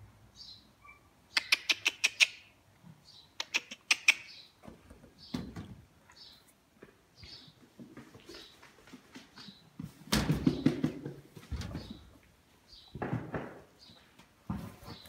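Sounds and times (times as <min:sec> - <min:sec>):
small birds chirping: 0:00.4 - 0:09.8, 0:11.7 - 0:13.0.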